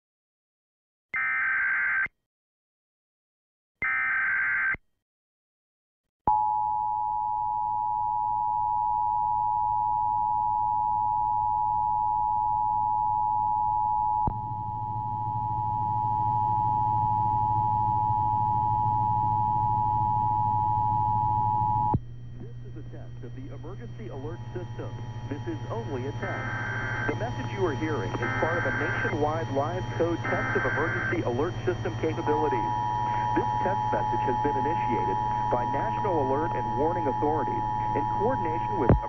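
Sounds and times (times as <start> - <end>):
low hum and static: 7.5 - 39.0
steady two-tone alert signal: 23.6 - 39.0
warbling digital data bursts: 24.2 - 38.8.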